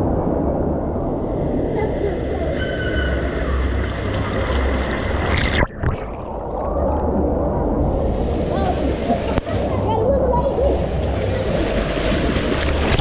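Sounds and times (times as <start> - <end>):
deep rumble: 0.0 - 13.0
rushing splashing water: 1.7 - 7.2, 10.6 - 13.0.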